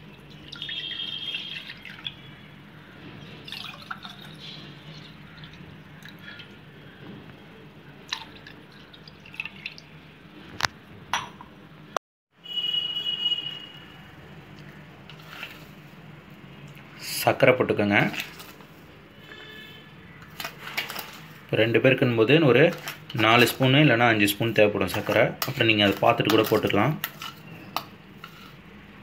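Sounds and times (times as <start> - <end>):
milk pouring and splashing: 0.0 - 2.3, 3.3 - 6.6, 8.0 - 10.0, 18.0 - 18.7, 20.2 - 28.6.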